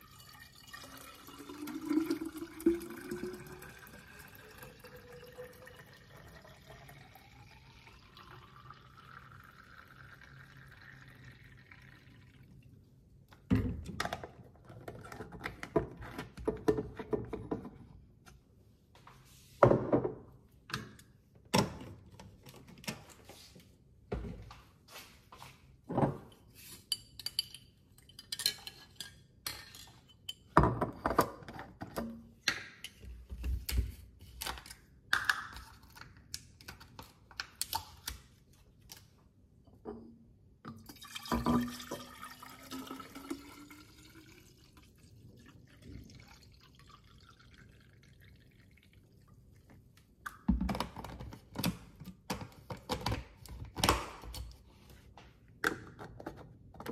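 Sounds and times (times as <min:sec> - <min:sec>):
water filling a container: 0:00.0 - 0:12.7, 0:40.7 - 0:49.7.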